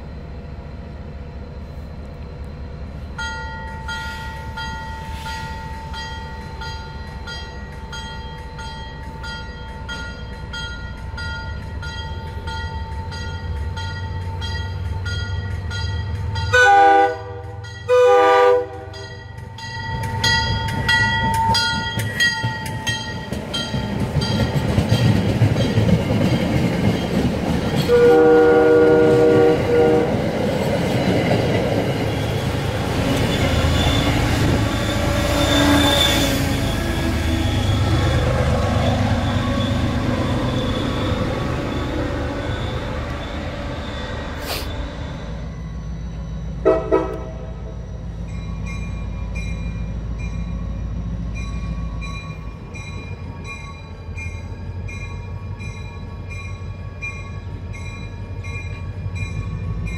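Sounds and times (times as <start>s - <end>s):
train rumbling past: 0.0s - 59.9s
train horn blasts: 16.5s - 19.2s, 27.8s - 30.3s, 34.8s - 37.8s, 46.6s - 47.7s.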